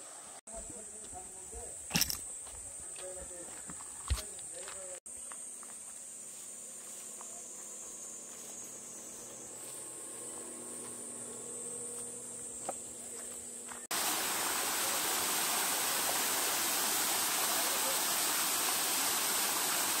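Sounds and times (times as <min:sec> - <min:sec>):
insects buzzing: 0:00.0 - 0:20.0
waterfall rushing over rocks: 0:13.9 - 0:20.0.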